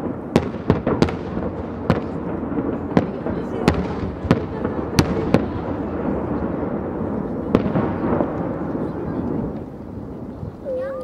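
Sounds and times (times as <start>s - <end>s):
firework shell bangs: 0.0s - 10.3s.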